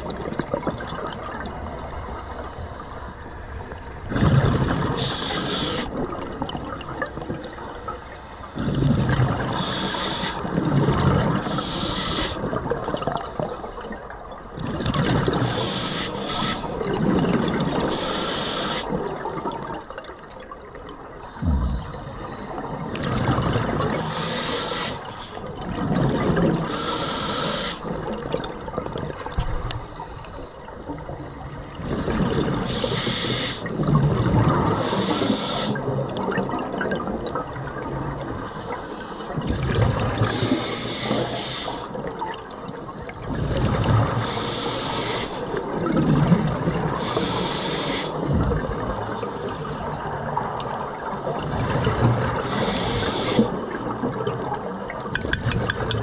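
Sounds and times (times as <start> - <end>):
bubbles rumbling underwater: 0.0 - 1.7, 3.6 - 7.5, 8.6 - 11.6, 13.9 - 15.6, 16.8 - 18.0, 18.9 - 24.6, 25.4 - 27.0, 27.9 - 29.9, 30.6 - 38.2, 39.3 - 40.7, 43.2 - 44.4, 45.5 - 50.8, 51.4 - 56.0
scuba regulator hissing: 5.0 - 5.9, 9.5 - 10.6, 11.5 - 12.4, 15.5 - 16.8, 17.8 - 19.0, 24.1 - 25.4, 26.7 - 27.9, 32.7 - 33.7, 34.8 - 35.9, 40.3 - 41.9, 44.2 - 45.4, 47.0 - 48.4, 52.5 - 53.8.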